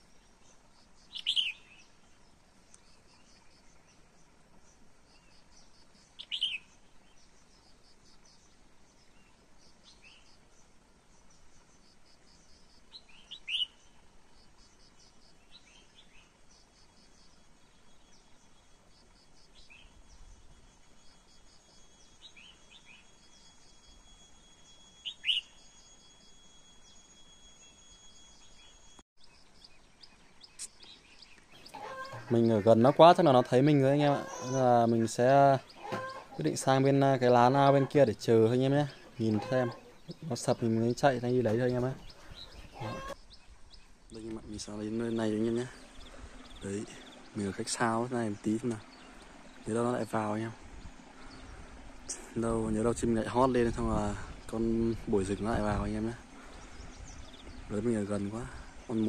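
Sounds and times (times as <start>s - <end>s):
faint insect chirring: 0.0s - 59.0s
short bright bird calls: 1.1s - 2.0s, 5.6s - 7.2s, 12.9s - 14.0s, 19.6s - 26.2s, 30.5s - 43.4s.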